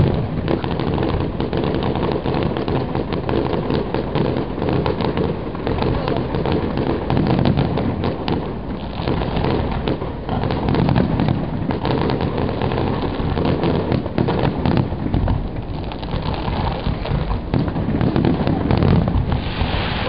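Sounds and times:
firework bursts and crackling: 0:00.0 - 0:20.0.

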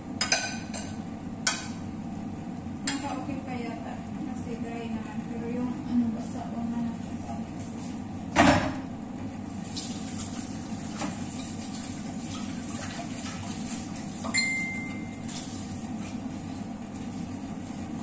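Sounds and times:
steady low hum: 0:00.0 - 0:12.7.

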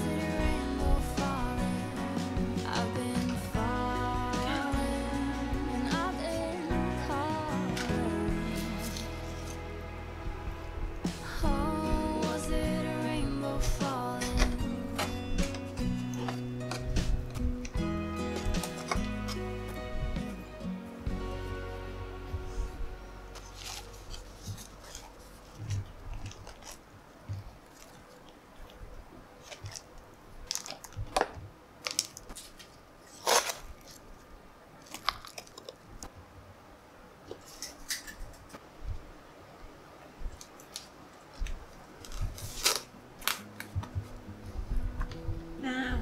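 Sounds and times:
hands rustling potting soil: 0:02.6 - 0:20.6, 0:22.1 - 0:28.8, 0:40.2 - 0:45.2.

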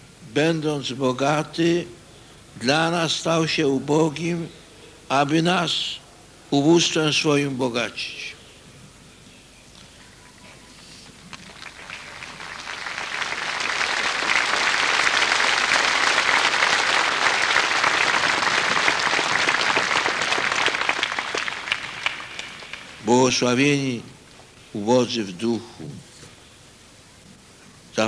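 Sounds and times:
large crowd applauding: 0:11.2 - 0:23.4.

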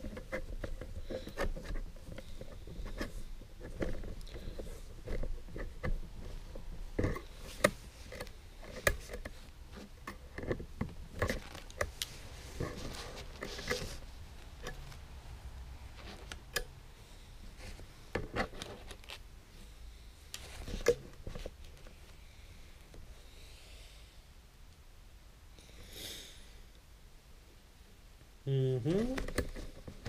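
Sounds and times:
umbrella fabric rustling: 0:11.0 - 0:15.2.

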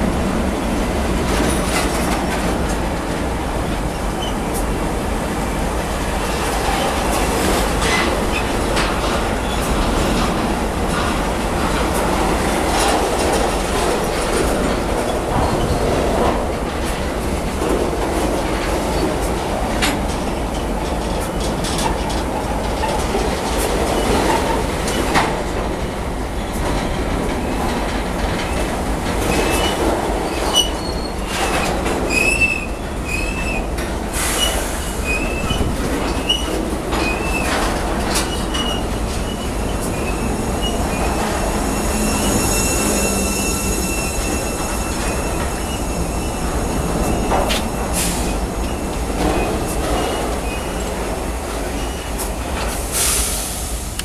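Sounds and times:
train wheels rolling on rails: 0:00.0 - 0:54.0
wheel squeals: 0:28.4 - 0:51.0
steady high squeal: 0:38.2 - 0:51.0.

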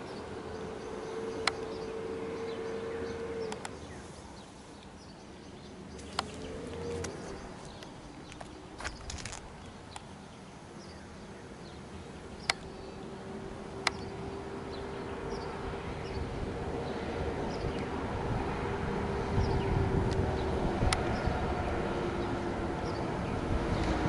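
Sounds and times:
birds chirping: 0:00.0 - 0:23.9
train rumble and engine hum: 0:00.0 - 0:24.0
sharp clicks: 0:03.5 - 0:03.8, 0:12.4 - 0:12.7, 0:13.8 - 0:14.1.

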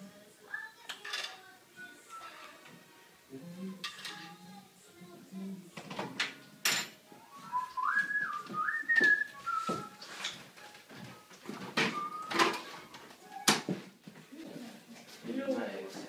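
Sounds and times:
person whistling a tune: 0:07.3 - 0:10.0, 0:11.8 - 0:12.7.

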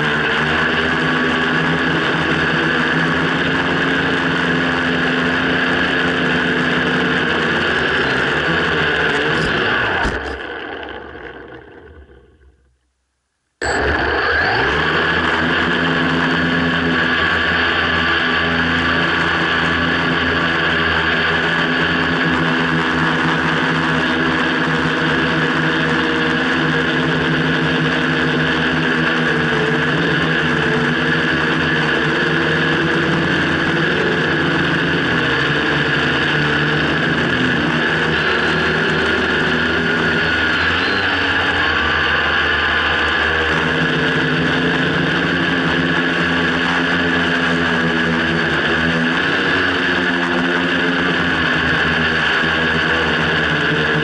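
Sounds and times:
drone motors humming: 0:00.0 - 0:54.0.

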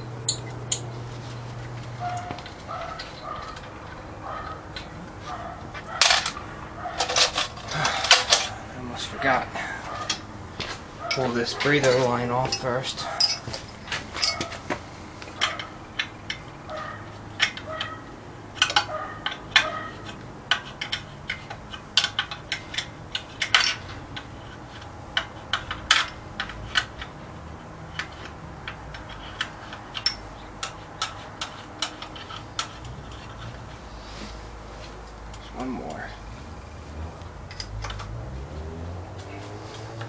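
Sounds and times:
wrench clinking on metal fittings: 0:00.3 - 0:00.9, 0:11.0 - 0:14.6, 0:18.6 - 0:24.3, 0:27.9 - 0:33.5.

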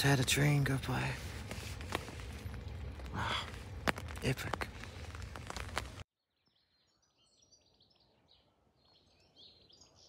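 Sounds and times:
fabric rustling: 0:01.0 - 0:06.1.

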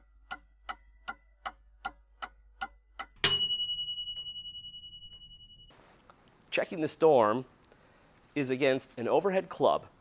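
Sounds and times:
clock ticking: 0:00.0 - 0:05.5
bell strike ringing: 0:03.2 - 0:05.8.

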